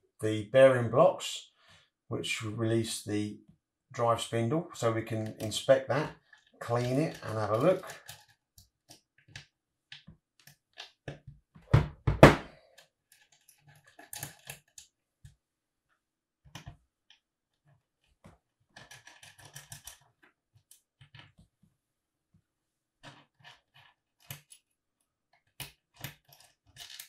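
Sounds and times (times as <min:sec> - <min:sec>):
louder knocks: 0:11.7 - 0:12.5.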